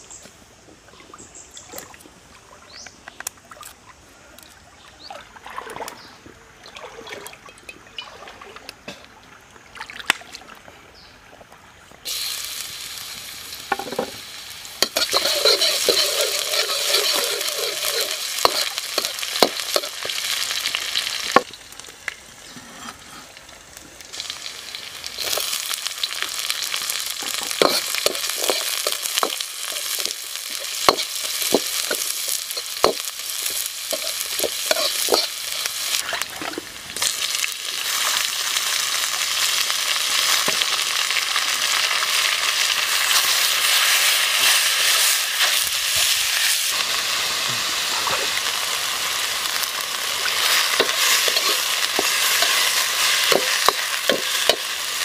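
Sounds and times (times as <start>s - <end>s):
food sizzling in hot oil: 12.1s - 36.2s, 36.8s - 55.0s.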